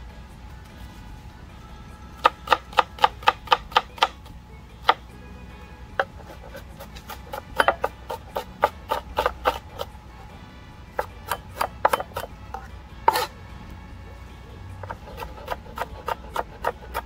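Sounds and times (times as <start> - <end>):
knife chopping on plastic board: 2.2 - 4.2, 6.0 - 9.9, 11.0 - 13.3, 14.8 - 17.0.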